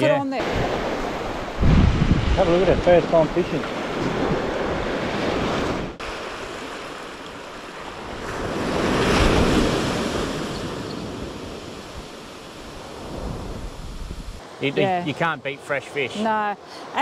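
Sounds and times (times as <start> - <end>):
ocean surf breaking on beach: 0.0 - 17.0
wind on microphone: 0.3 - 6.4, 8.0 - 14.4.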